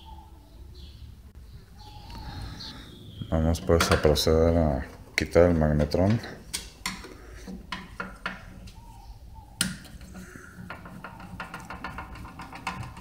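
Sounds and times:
metallic clicks and knocks: 0:09.6 - 0:13.0.

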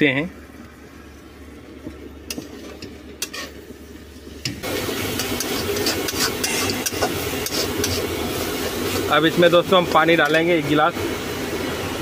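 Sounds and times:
food sizzling in a pan: 0:02.3 - 0:12.0
metal spoon scraping pan: 0:03.2 - 0:03.6, 0:05.2 - 0:08.1.

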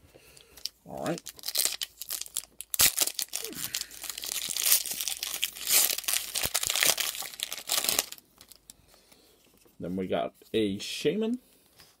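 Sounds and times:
foil wrapper crinkling and tearing: 0:00.6 - 0:08.8.

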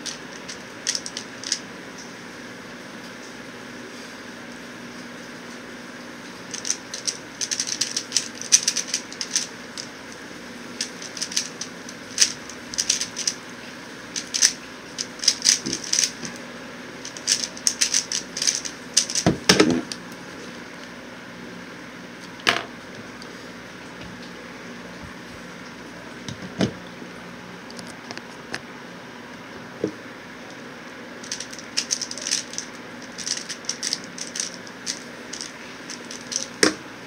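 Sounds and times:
puzzle cube clicking: 0:00.0 - 0:01.6, 0:06.5 - 0:09.9, 0:10.8 - 0:13.4, 0:14.2 - 0:16.3, 0:17.0 - 0:19.3, 0:31.2 - 0:36.7
electric fan hum: 0:00.0 - 0:37.0
cube thumping down: 0:17.3 - 0:20.0.

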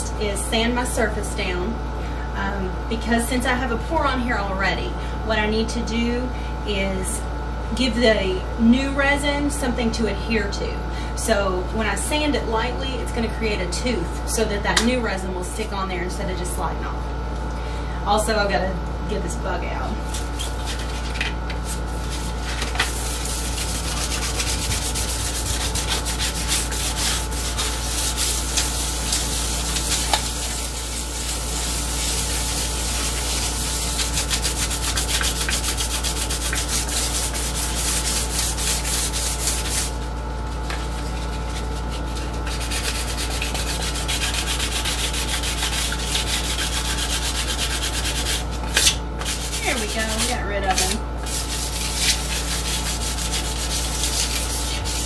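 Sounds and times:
sandpaper scratching resin: 0:20.0 - 0:55.0.

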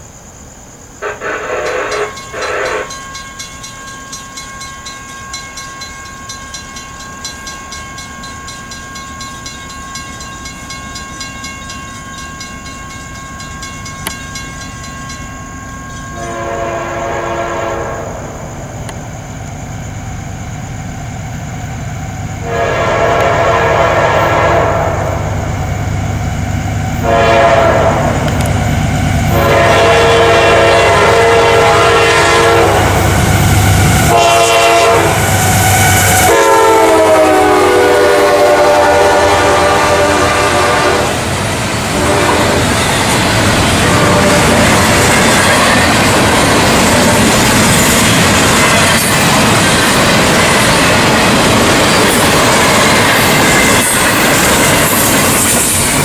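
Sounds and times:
diesel locomotive rumble: 0:00.1 - 0:56.0
train horn blasts: 0:01.0 - 0:03.2, 0:16.0 - 0:18.5, 0:22.4 - 0:25.5, 0:27.0 - 0:28.5, 0:29.3 - 0:45.9
crossing bell ringing: 0:01.4 - 0:17.7, 0:36.3 - 0:56.0.

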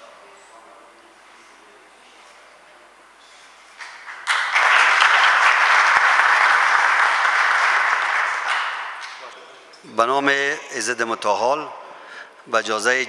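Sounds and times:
crowd applauding: 0:03.8 - 0:09.2.

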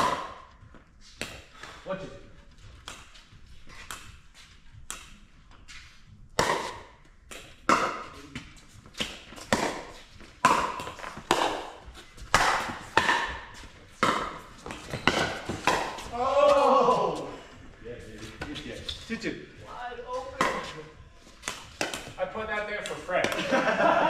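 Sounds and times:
paddles hitting plastic ball: 0:02.8 - 0:04.2, 0:04.8 - 0:05.2, 0:06.4 - 0:16.6, 0:21.4 - 0:22.2.

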